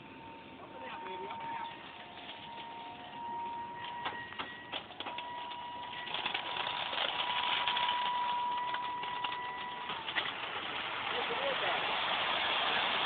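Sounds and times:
small motor whine: 0.0s - 10.1s.

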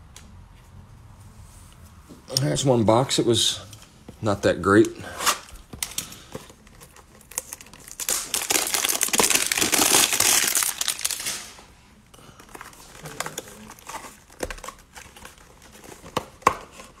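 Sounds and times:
plastic wrap crinkling: 5.2s - 16.2s.

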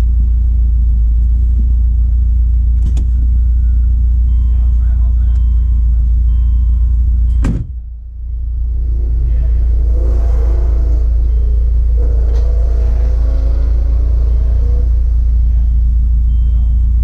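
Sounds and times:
deep steady rumble: 0.0s - 17.0s
wavering mechanical whir: 8.1s - 17.0s.

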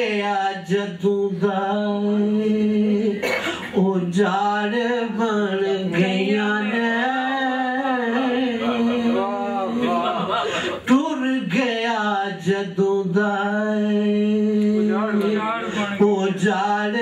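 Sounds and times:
man singing unaccompanied: 0.0s - 17.0s.

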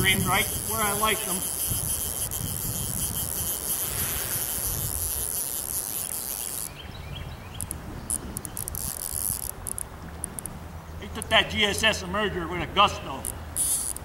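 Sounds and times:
high steady hiss: 0.0s - 6.7s.

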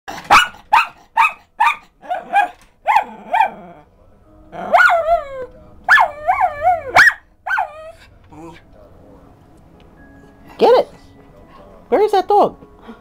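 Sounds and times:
dog barking sharply: 0.1s - 3.5s, 7.0s - 7.8s
dog yelping barks: 0.1s - 3.6s, 4.7s - 8.0s.

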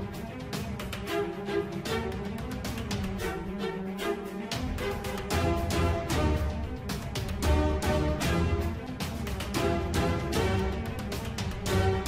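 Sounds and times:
steady percussive beat: 0.0s - 12.0s.

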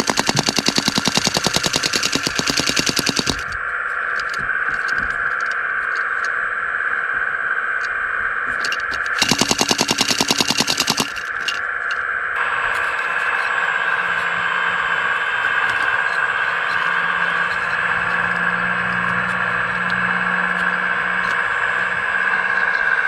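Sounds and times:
rapid clatter: 0.0s - 3.6s, 8.6s - 11.7s
hydraulic pump whining: 0.0s - 6.3s, 8.5s - 23.0s
low hum: 0.0s - 23.0s.

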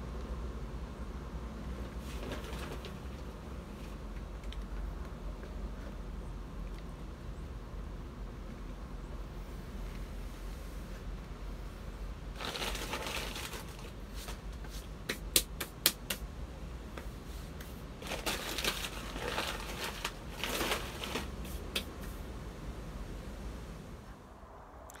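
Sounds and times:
sharp hand slaps: 15.1s - 16.3s.

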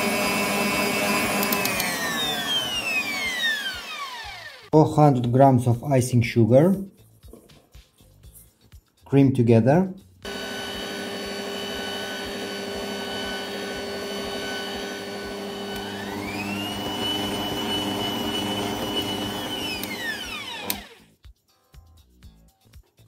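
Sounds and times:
stand mixer motor whining: 0.0s - 4.7s, 10.3s - 21.0s
mixer switch click: 1.4s - 2.0s, 15.7s - 16.0s.

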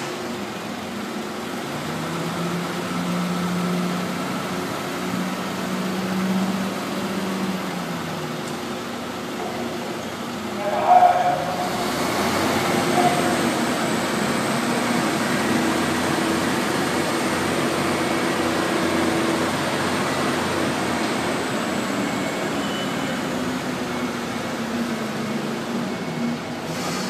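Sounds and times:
diesel engine running: 0.0s - 27.0s.

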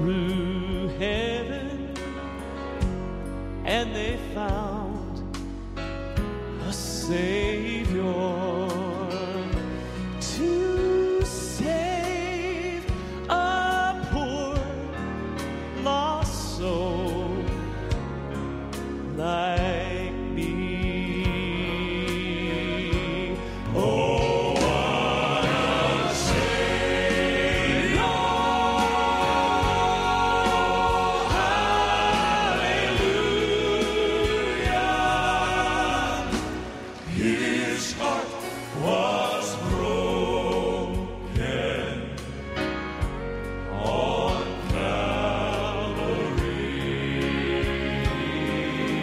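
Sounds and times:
male vocal quartet singing: 0.0s - 5.4s, 6.4s - 18.0s, 18.7s - 49.0s.

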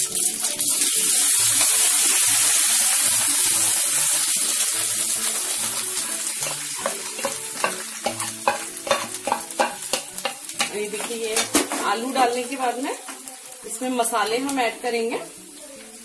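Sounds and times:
hot oil sizzling: 0.0s - 16.0s
spoon scraping a pan: 5.7s - 12.2s.

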